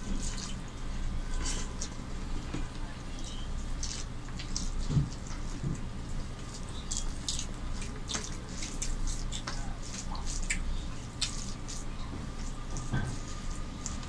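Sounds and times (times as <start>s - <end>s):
low steady hum: 0.0s - 14.0s
wet squelches of hand eating: 0.0s - 14.0s
mouths chewing: 1.3s - 14.0s.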